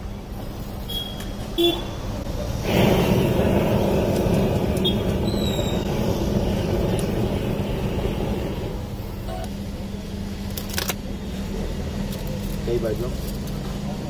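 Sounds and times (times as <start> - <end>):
gas blow torch hissing: 2.2 - 9.3.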